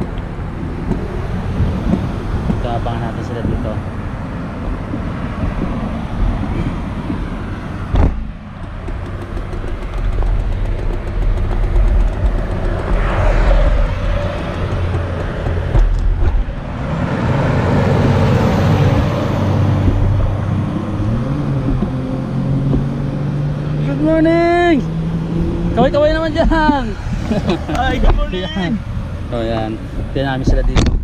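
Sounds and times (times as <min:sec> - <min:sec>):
cars passing on highway: 0:00.0 - 0:31.0
sharp knock: 0:07.9 - 0:13.5.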